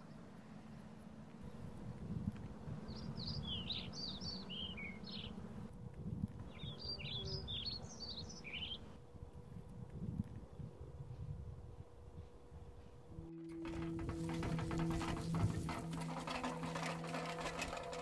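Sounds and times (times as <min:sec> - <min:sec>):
songbird chirping: 0:00.0 - 0:09.0
low background noise: 0:00.0 - 0:18.0.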